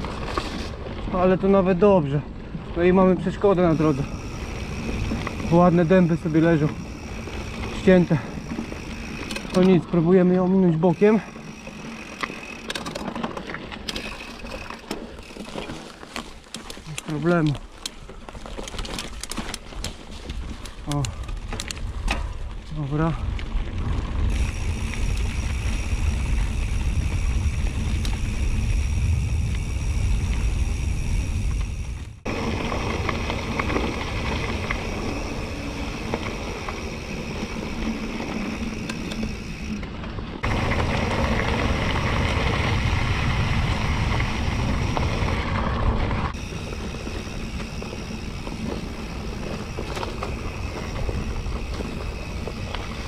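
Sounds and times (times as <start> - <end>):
bike rattling: 0.0 - 53.0
tyres rumbling on dirt: 0.0 - 53.0.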